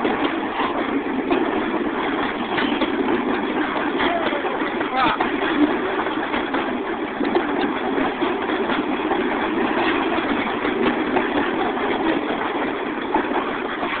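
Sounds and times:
diesel locomotives rumbling: 0.0s - 14.0s
steel wheels on rails: 0.0s - 14.0s.

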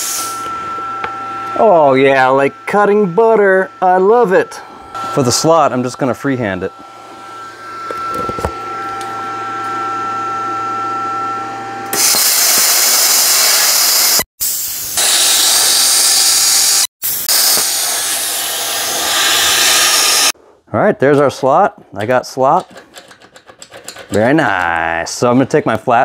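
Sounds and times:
plasma cutter hum and whine: 0.0s - 9.1s, 11.9s - 20.4s
plasma cutting arc hissing: 12.3s - 20.4s.

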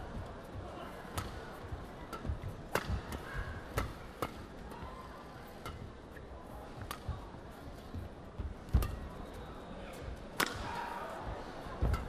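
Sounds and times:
racket striking shuttlecock: 1.0s - 1.4s, 2.0s - 4.5s, 5.6s - 5.9s, 6.8s - 7.1s, 8.7s - 9.0s, 10.4s - 10.8s, 11.8s - 12.0s.

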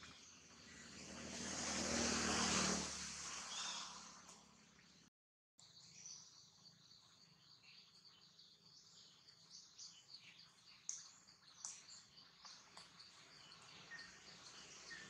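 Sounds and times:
birds chirping: 3.4s - 15.0s.

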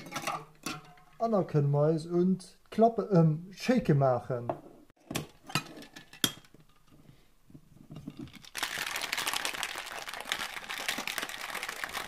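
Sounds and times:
ice rattling in cocktail shaker: 8.2s - 12.0s.

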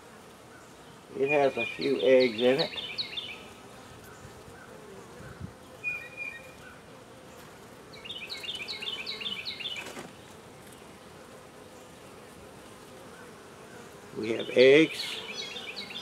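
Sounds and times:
honey bees buzzing: 0.0s - 16.0s
bird chirping: 0.6s - 3.5s, 5.2s - 6.7s, 8.0s - 9.9s, 14.2s - 16.0s.

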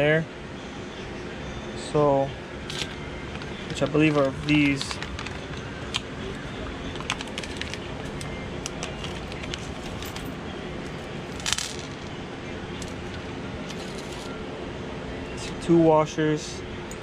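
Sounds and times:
steady shop hum: 0.0s - 17.0s
plastic bag crinkling: 2.7s - 10.3s
metal parts clicking and tapping: 7.0s - 12.1s.

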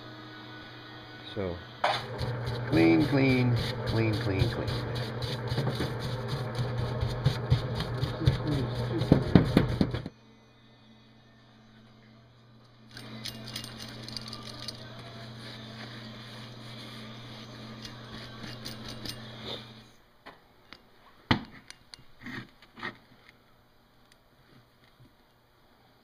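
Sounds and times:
steady low hum: 0.0s - 26.0s
towel rubbing on metal bearing: 2.4s - 9.4s, 15.1s - 19.8s.

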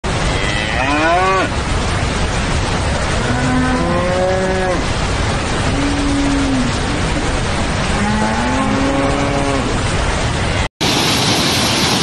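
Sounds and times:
steady rushing noise: 0.0s - 12.0s
cattle mooing: 0.3s - 1.5s, 7.8s - 9.8s.

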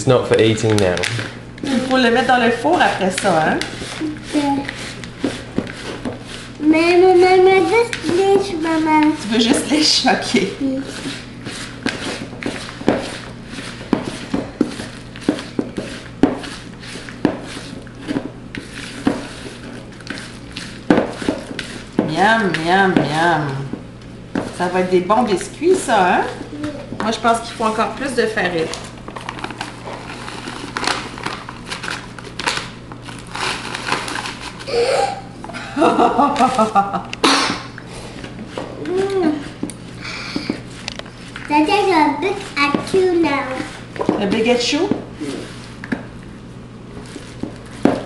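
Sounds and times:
spatula scraping dough in bowl: 1.8s - 23.6s, 40.4s - 45.8s
plastic bag crinkling: 28.5s - 35.0s.

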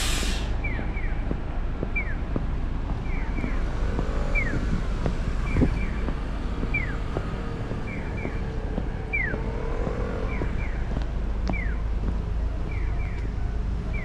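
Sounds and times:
traffic: 0.0s - 14.0s
electronic bird-chirp crossing signal: 2.0s - 2.2s, 3.0s - 4.7s, 6.6s - 10.9s.

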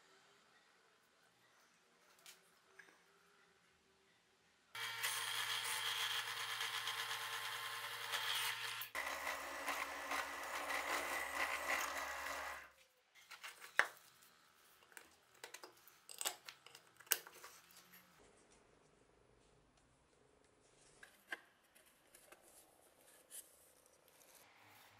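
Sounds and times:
drill press boring wood: 4.8s - 12.7s.

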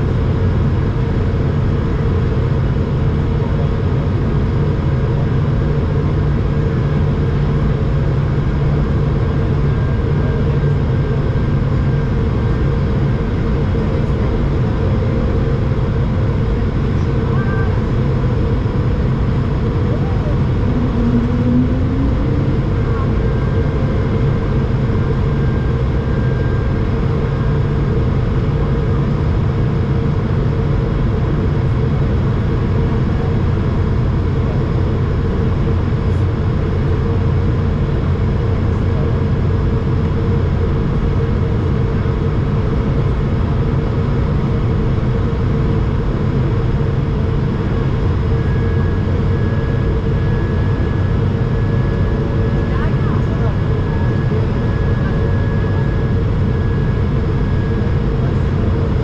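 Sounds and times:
faint steady whine: 0.0s - 59.0s
jet engines humming: 0.0s - 59.0s
airflow rushing over fuselage: 17.8s - 24.8s.

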